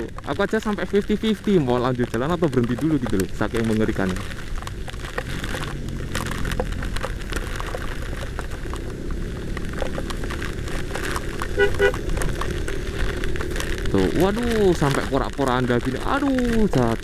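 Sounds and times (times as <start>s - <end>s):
raindrops ticking on helmet: 0.0s - 17.0s
wind and road rumble: 0.0s - 17.0s
short horn beep: 11.6s - 11.9s.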